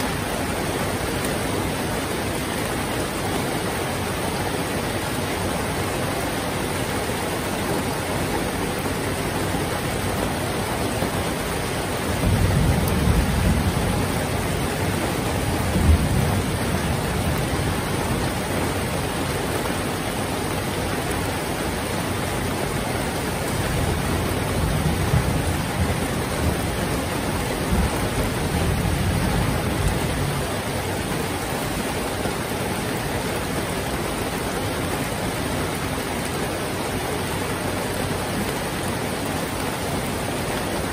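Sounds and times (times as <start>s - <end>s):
heavy rain falling: 0.0s - 40.9s
thunder rumbling: 11.9s - 19.0s, 22.7s - 31.4s.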